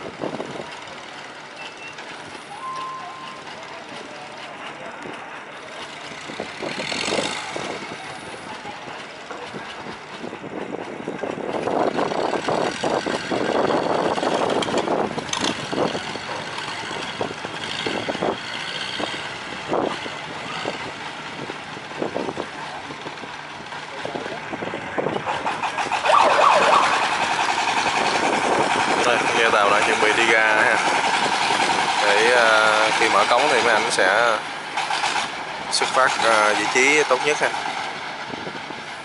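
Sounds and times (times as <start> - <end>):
boat engine running: 0.0 - 38.8
propeller churning water: 19.4 - 39.0.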